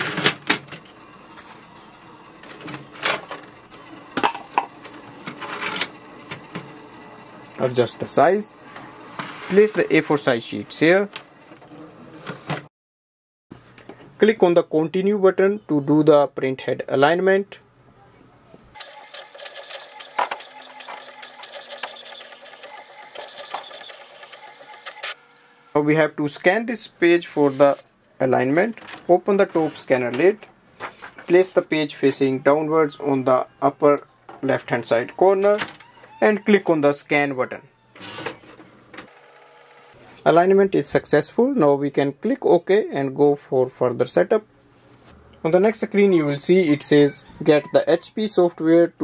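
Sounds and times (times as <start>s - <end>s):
printer whirring and clicking: 4.8s - 7.6s, 18.8s - 25.8s, 38.0s - 40.0s.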